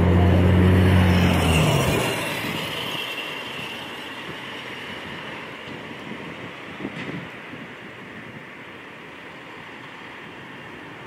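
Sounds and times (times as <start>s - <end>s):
vehicle engine hum: 0.0s - 8.1s
cars passing on busy road: 0.0s - 11.0s.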